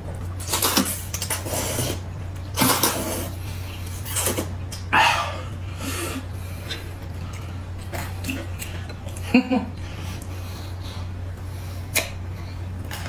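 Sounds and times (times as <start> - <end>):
steady low hum: 0.0 - 13.0
noodles being slurped: 0.4 - 2.0, 2.6 - 4.6.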